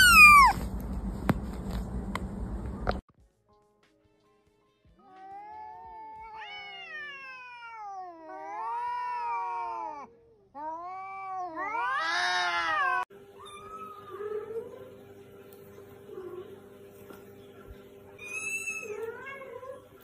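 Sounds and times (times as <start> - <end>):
kittens meowing: 0.0 - 0.6.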